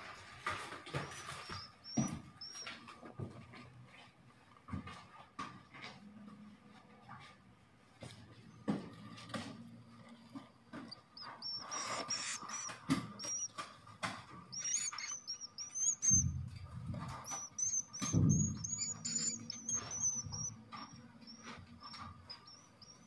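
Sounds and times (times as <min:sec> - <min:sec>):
swiftlets chirping: 0:01.0 - 0:02.7, 0:11.2 - 0:13.6, 0:14.5 - 0:16.4, 0:17.2 - 0:23.0.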